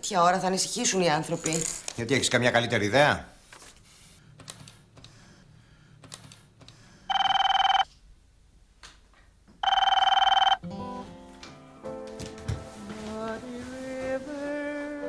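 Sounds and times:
electronic telephone ring: 7.1s - 7.9s, 9.6s - 10.6s
music: 10.6s - 15.0s.

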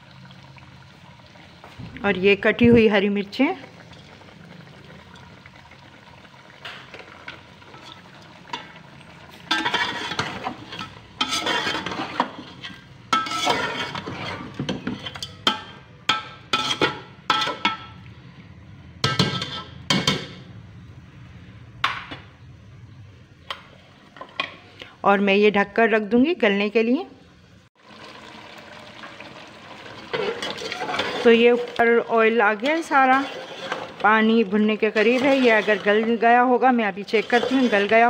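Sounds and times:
metal spoon scraping metal pot: 9.3s - 15.7s, 16.5s - 17.8s, 30.1s - 38.0s.

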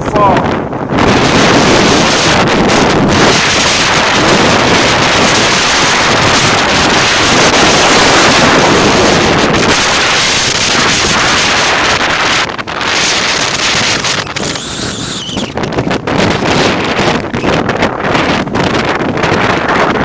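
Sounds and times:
wind buffeting microphone: 0.0s - 20.0s
waves breaking on shore: 1.1s - 16.9s.

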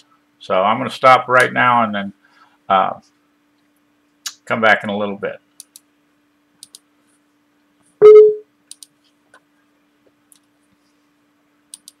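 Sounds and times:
computer mouse clicking: 5.6s - 5.9s, 6.6s - 6.8s, 8.7s - 9.0s, 11.7s - 12.0s
short loud tone: 8.0s - 8.4s.

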